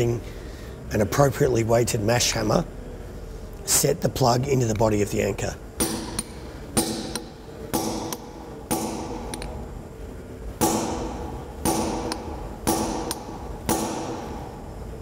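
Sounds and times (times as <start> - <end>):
hammer striking steel tool: 5.8 - 9.5, 10.6 - 14.4.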